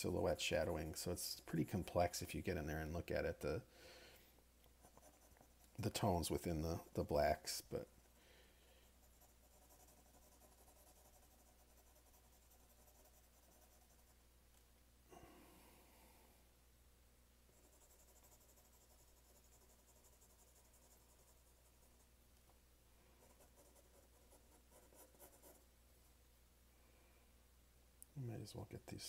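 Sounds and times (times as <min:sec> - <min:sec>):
pencil scratching on paper: 0:04.8 - 0:06.0, 0:08.8 - 0:14.2, 0:17.5 - 0:22.1, 0:23.2 - 0:25.6.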